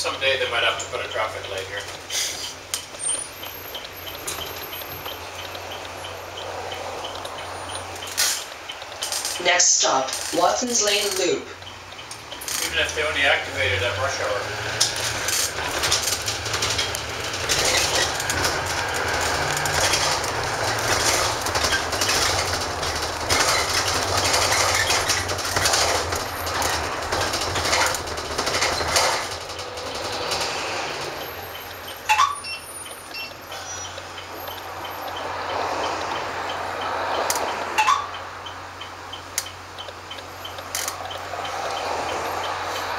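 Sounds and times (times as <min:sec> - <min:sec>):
diesel bus engine: 0:00.0 - 0:42.9
road noise: 0:00.0 - 0:42.9
interior fittings rattling: 0:10.2 - 0:32.2.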